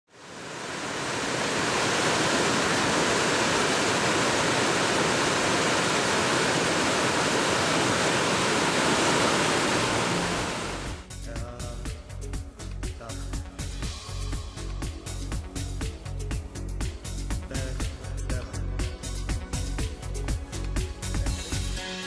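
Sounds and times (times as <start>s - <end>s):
waterfall rushing over rocks: 0.1s - 11.0s.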